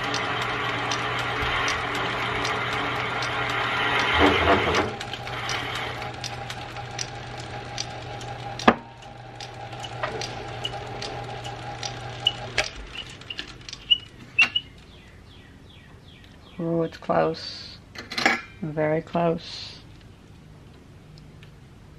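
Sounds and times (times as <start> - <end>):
lathe cutting metal: 0.0 - 13.4
lathe running hum: 0.0 - 14.2
ticks: 0.0 - 14.9.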